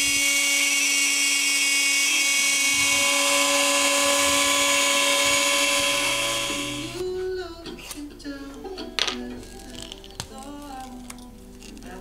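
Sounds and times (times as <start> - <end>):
router spindle whining: 0.0 - 7.0.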